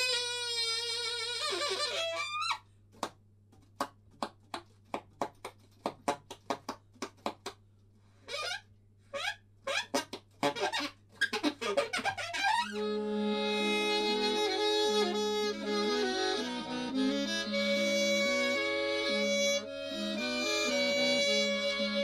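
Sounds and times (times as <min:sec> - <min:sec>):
saxophone squeaks and honks: 0:00.0 - 0:02.6, 0:08.3 - 0:22.0.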